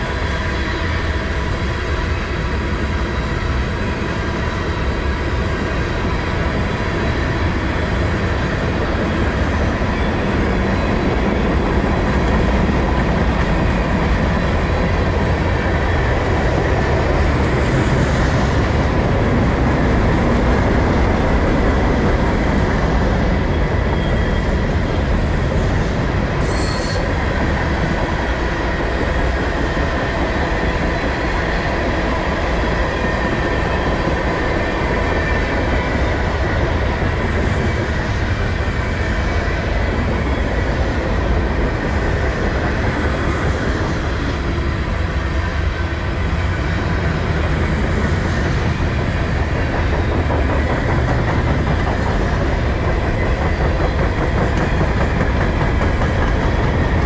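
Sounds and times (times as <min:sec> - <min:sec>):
train wheels rumbling on rails: 0:00.0 - 0:57.0
high wheel squeal: 0:26.4 - 0:27.2.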